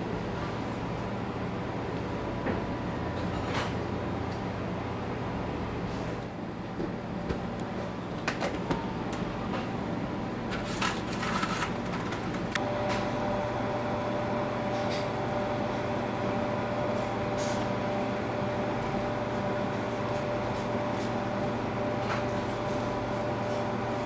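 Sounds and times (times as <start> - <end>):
steady machine hum: 8.8 - 24.0.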